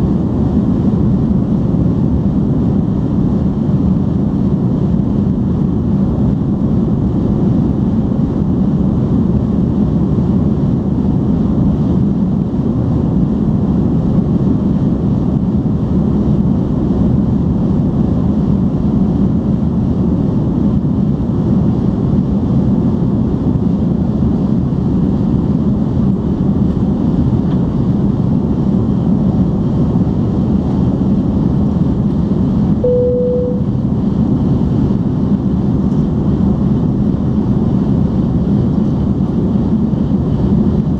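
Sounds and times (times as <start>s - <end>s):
airplane cabin engine roar: 0.0s - 40.9s
single tone: 32.8s - 34.0s.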